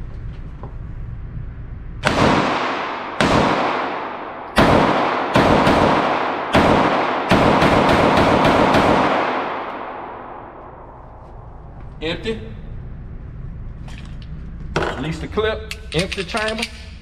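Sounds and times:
pistol shots echoing indoors: 2.0s - 11.6s.

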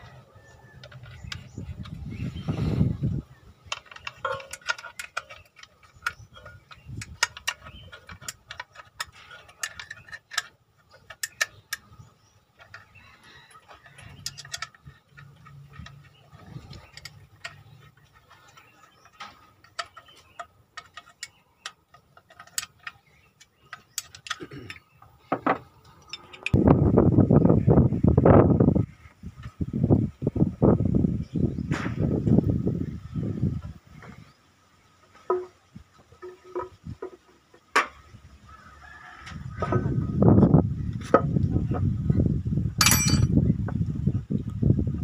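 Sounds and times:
spanner clicking on bolts: 3.7s - 12.0s, 12.6s - 24.9s.

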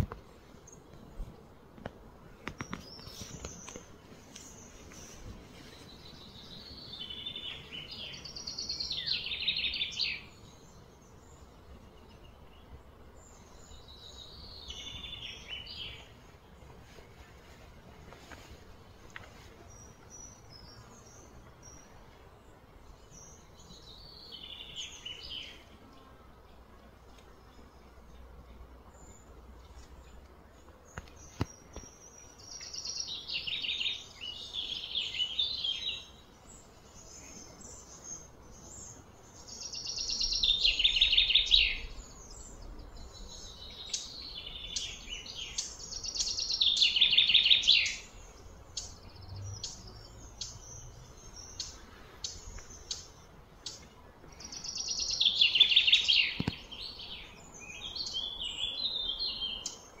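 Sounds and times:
songbird singing: 0.0s - 60.0s
bird chirps: 30.9s - 60.0s.

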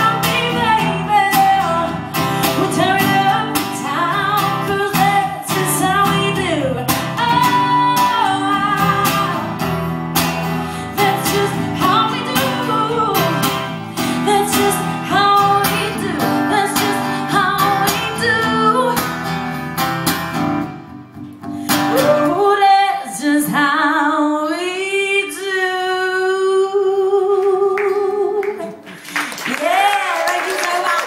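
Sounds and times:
woman singing: 0.0s - 9.7s, 10.7s - 19.4s, 21.7s - 28.9s, 29.5s - 31.0s
strummed acoustic guitar: 0.0s - 22.8s.

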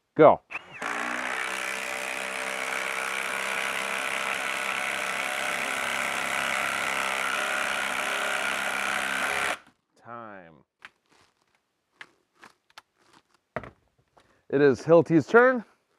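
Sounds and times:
impact driver hammering into wood: 0.8s - 9.6s.

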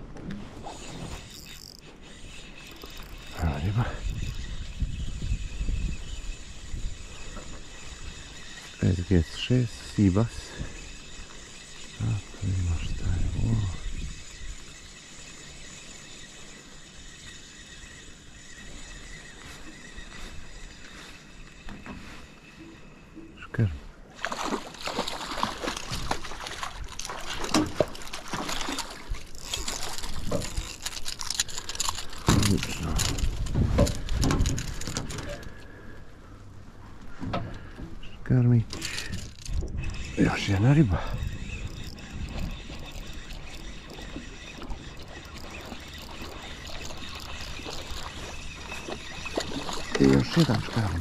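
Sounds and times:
wind and water hiss: 0.0s - 51.0s
fishing reel clicking: 0.6s - 23.3s, 24.2s - 35.8s, 38.7s - 51.0s
fish splashing in water: 24.2s - 35.7s.

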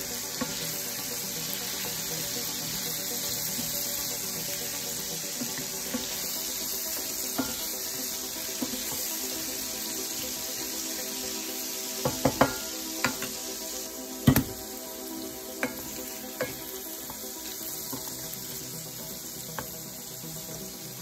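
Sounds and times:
garlic sizzling in oil: 0.0s - 21.0s
spatula knocking on pan: 12.0s - 13.4s, 14.2s - 14.6s.

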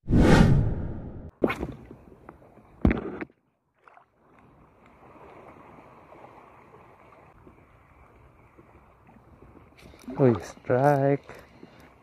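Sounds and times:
water swishes: 3.6s - 12.0s.

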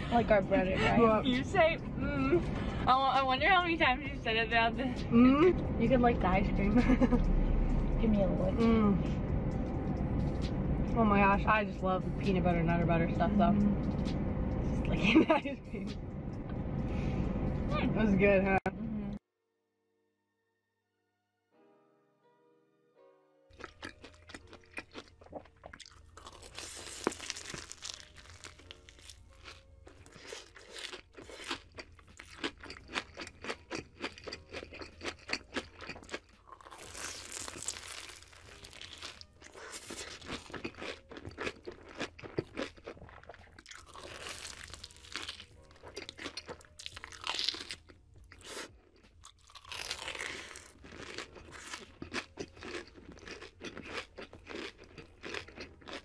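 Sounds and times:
crunchy chewing: 23.5s - 56.0s
biting crisp batter: 23.6s - 56.0s.

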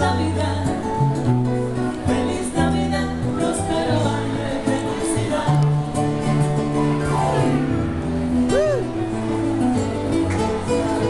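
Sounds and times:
person singing: 0.0s - 1.3s, 8.5s - 9.0s
bass line: 0.0s - 10.2s
guitar: 0.0s - 11.0s.

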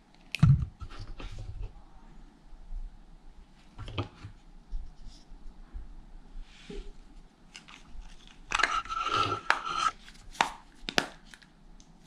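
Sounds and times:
plastic rubbing and scraping: 7.6s - 10.0s.

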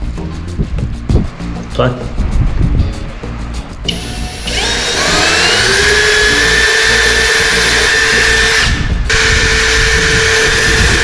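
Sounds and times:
electric drill boring through wood: 3.9s - 11.0s.

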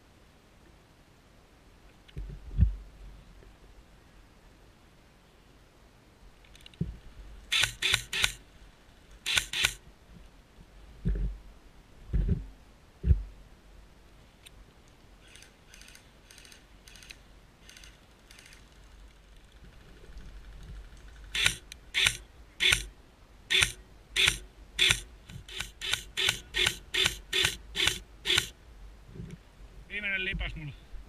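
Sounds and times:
airsoft rifle firing shots: 7.5s - 8.4s, 9.3s - 9.8s, 21.4s - 22.9s, 23.5s - 28.6s
distant airsoft shots: 23.5s - 28.6s.

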